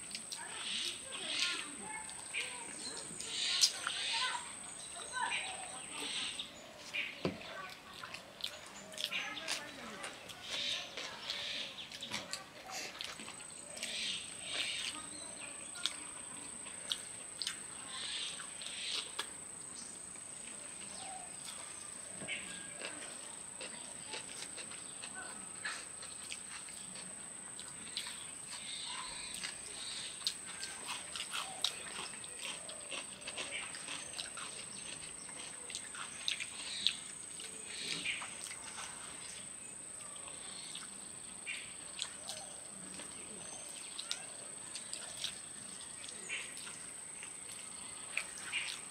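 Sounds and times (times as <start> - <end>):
chewing and lip smacks: 7.6 - 15.1, 15.8 - 17.7, 20.4 - 39.4, 42.0 - 48.9.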